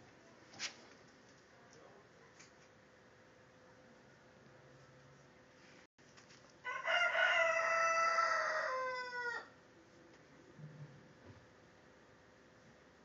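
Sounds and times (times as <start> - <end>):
rooster crowing: 6.6 - 9.6.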